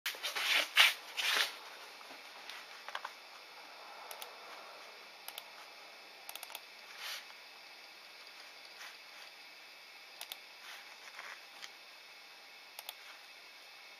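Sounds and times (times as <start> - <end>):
background hiss: 0.1 - 13.9
faint clicks and ticks: 6.2 - 7.4, 10.2 - 10.4, 12.8 - 13.4
soft rustle: 8.3 - 9.4, 10.6 - 11.7.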